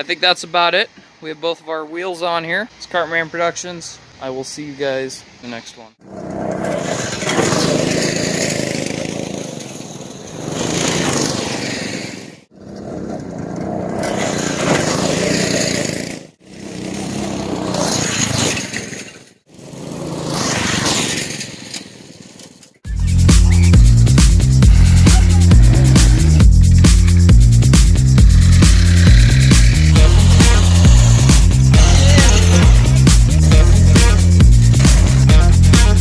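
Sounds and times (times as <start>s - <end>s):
go-kart engine passing: 6.0s - 22.7s, 23.4s - 26.4s, 28.4s - 36.0s.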